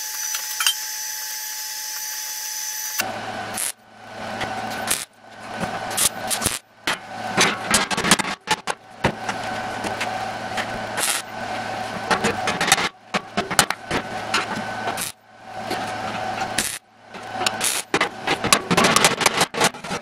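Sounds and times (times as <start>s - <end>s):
welding arc crackling: 0.0s - 6.7s, 9.1s - 15.2s, 16.4s - 18.4s
welding machine hum: 0.0s - 20.0s.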